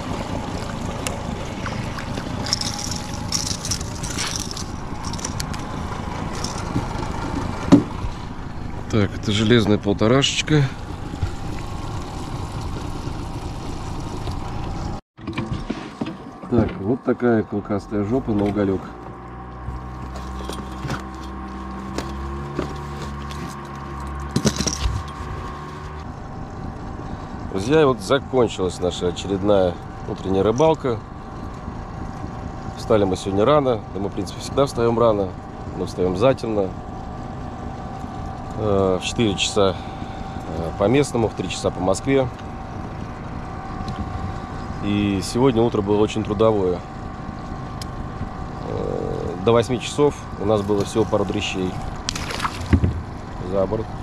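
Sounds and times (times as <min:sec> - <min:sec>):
steady mechanical hum: 0:00.0 - 0:54.0
clattering: 0:24.3 - 0:25.2.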